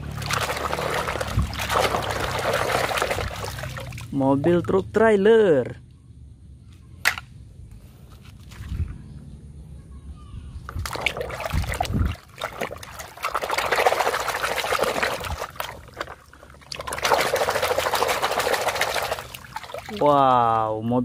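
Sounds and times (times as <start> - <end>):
water splashing in a basin: 0.0 - 4.8, 10.7 - 20.4.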